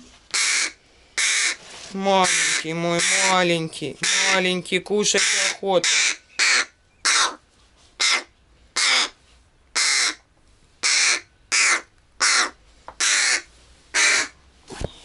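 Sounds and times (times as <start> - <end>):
young crow begging calls: 0.3 - 7.4, 8.0 - 10.2, 10.8 - 14.4.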